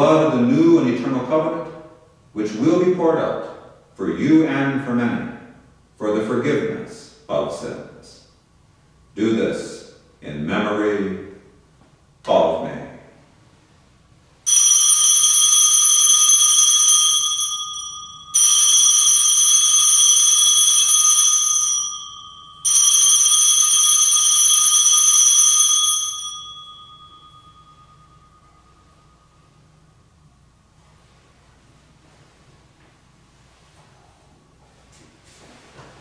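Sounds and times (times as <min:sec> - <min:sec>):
altar bell ringing: 0:14.4 - 0:30.0.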